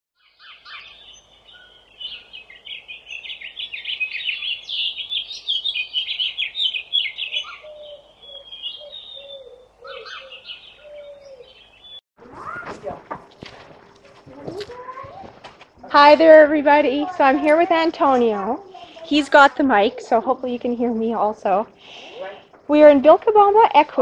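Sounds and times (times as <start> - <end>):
low whistled bird notes: 0.2 - 12.7
birds chirping: 0.2 - 24.0.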